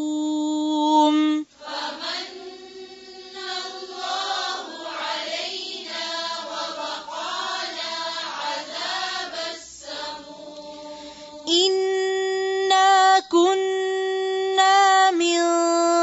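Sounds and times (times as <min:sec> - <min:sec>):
voices chanting in unison: 0:01.5 - 0:11.9.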